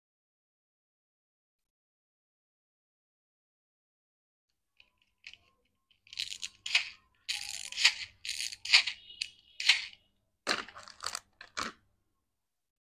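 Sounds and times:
plastic toys rattling: 0:04.8 - 0:11.8.

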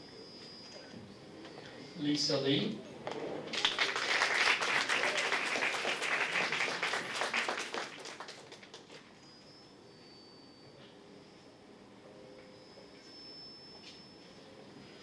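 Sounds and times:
audience applause: 0:03.4 - 0:09.1.

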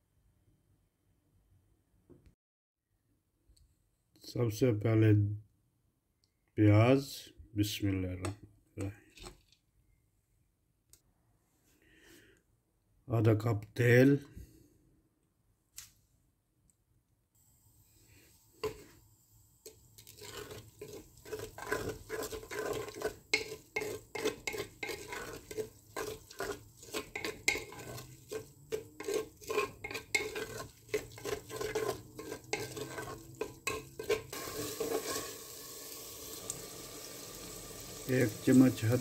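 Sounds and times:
spatula scraping onions in pot: 0:18.1 - 0:19.0, 0:19.6 - 0:36.4
steady hiss: 0:34.3 - 0:39.0.

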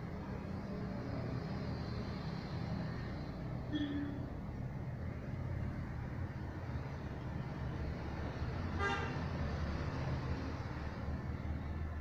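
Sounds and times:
road traffic rumble: 0:00.0 - 0:12.0
vehicle horn toot: 0:03.7 - 0:04.2, 0:08.8 - 0:09.2.

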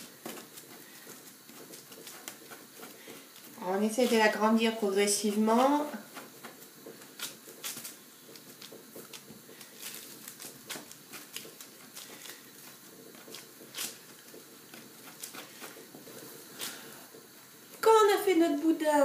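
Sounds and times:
fingertips patting dough: 0:00.0 - 0:18.0
baking paper rustling: 0:00.0 - 0:18.6.

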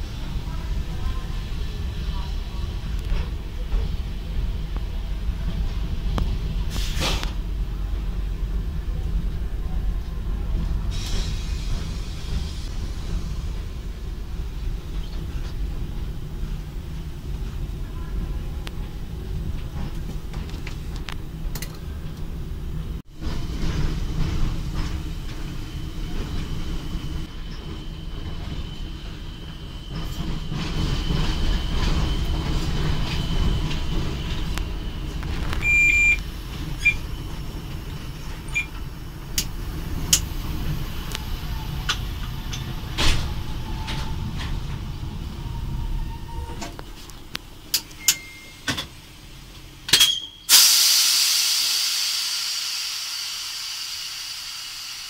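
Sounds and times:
locomotive running gear rumble: 0:00.0 - 0:49.9
short beeps: 0:35.6 - 0:36.2, 0:48.0 - 0:48.6
compressed air hiss: 0:50.5 - 0:55.0.

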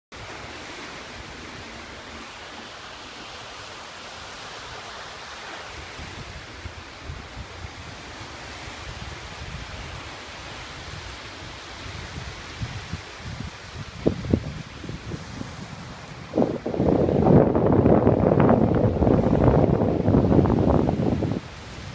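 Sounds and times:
waves washing onto shore: 0:00.1 - 0:21.9
wind buffeting microphone: 0:05.7 - 0:21.9.

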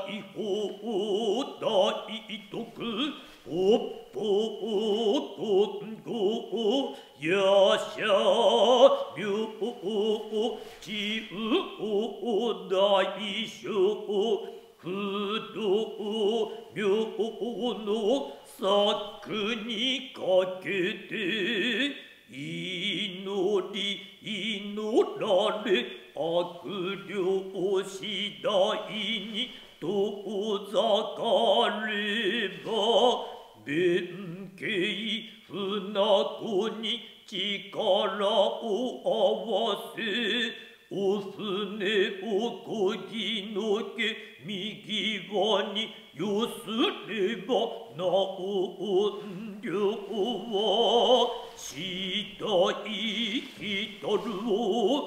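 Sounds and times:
men chanting: 0:00.0 - 0:23.6
short breaths: 0:03.2 - 0:03.5, 0:06.9 - 0:07.2, 0:22.0 - 0:22.3, 0:33.2 - 0:33.6.

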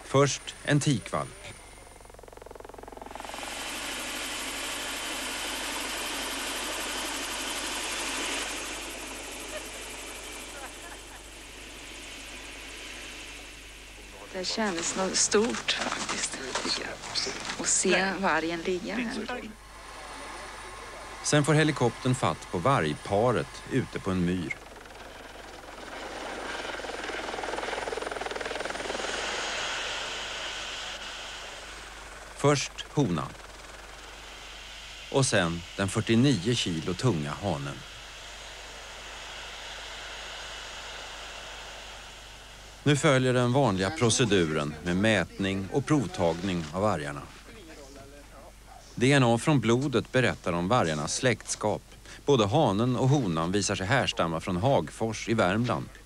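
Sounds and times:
helicopter rotor and turbine: 0:00.0 - 0:56.0.

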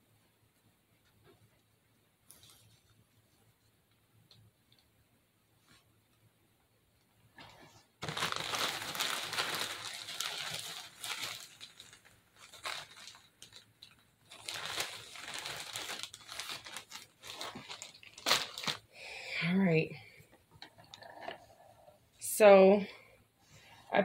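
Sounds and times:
plastic bag crinkling: 0:08.0 - 0:18.9.

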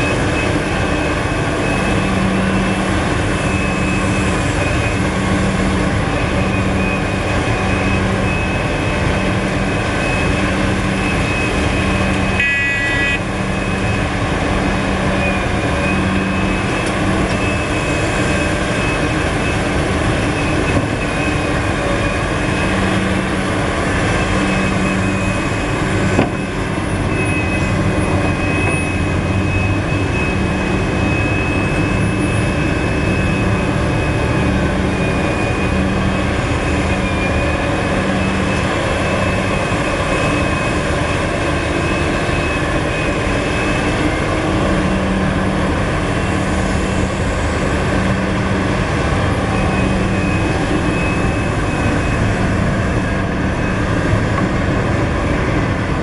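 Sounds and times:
heavy diesel engines droning: 0:00.0 - 0:56.0
short high-pitched tone: 0:12.3 - 0:13.2.

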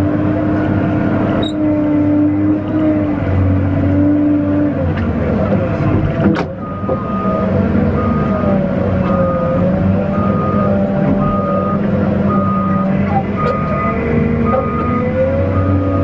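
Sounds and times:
diesel engine and hydraulics: 0:00.0 - 0:16.0.

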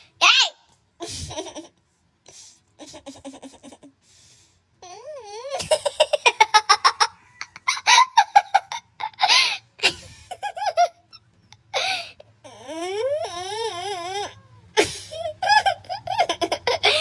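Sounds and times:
person laughing: 0:01.0 - 0:01.8, 0:02.8 - 0:04.0, 0:05.5 - 0:11.2, 0:14.8 - 0:17.0.

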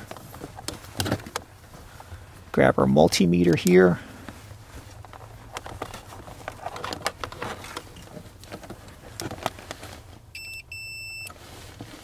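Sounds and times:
clicking and rustling of test leads: 0:00.0 - 0:02.2, 0:03.0 - 0:10.4
multimeter continuity beep: 0:10.3 - 0:11.4.

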